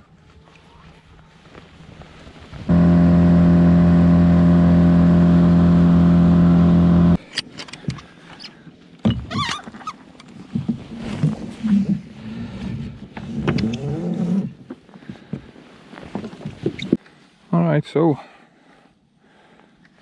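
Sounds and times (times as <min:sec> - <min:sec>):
outboard motor running: 0:02.7 - 0:07.2.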